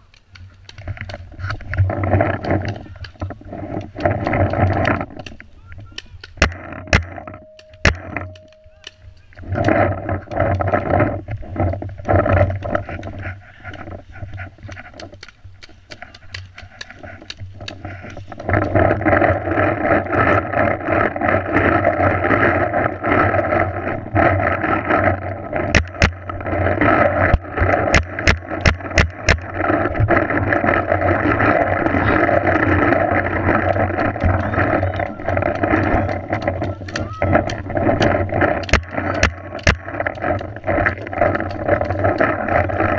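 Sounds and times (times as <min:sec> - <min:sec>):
steady rushing noise: 0:00.0 - 0:42.9
paintball markers firing: 0:33.5 - 0:42.9.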